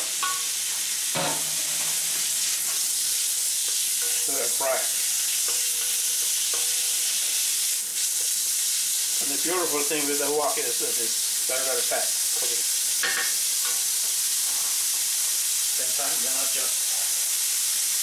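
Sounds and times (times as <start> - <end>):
meat sizzling in a wok: 0.0 - 18.0
stirring scrapes and clatters: 1.2 - 7.4.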